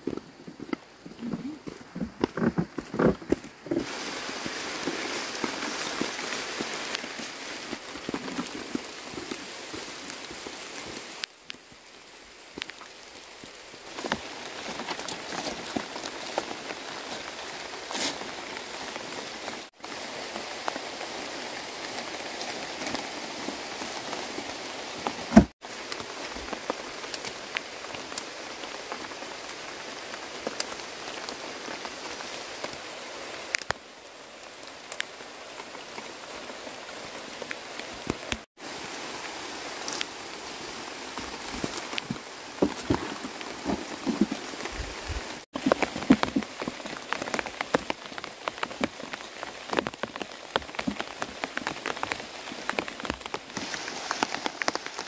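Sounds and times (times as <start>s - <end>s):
rain on umbrella and leaves: 0.0s - 55.0s.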